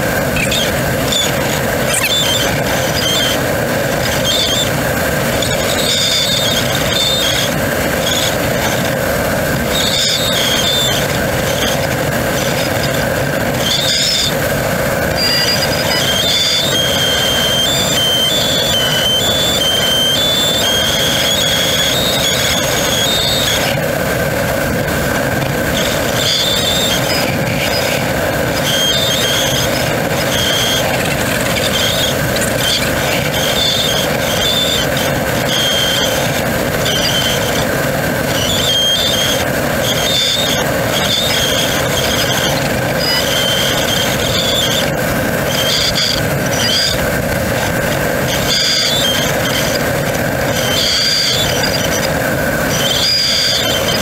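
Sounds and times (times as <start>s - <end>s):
air rushing around cockpit: 0.0s - 54.0s
high whistling tones: 0.4s - 8.8s, 9.7s - 11.8s, 15.1s - 23.8s, 25.7s - 37.7s, 38.3s - 47.0s.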